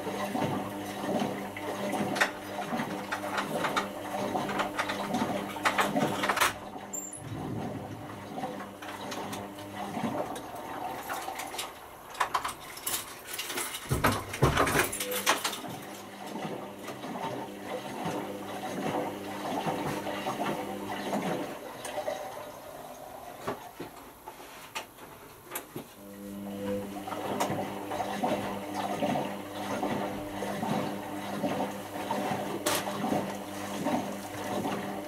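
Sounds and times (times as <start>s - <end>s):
washing machine knocks and clatters: 0.0s - 11.4s, 13.6s - 21.5s
washing machine motor hum: 0.0s - 35.0s.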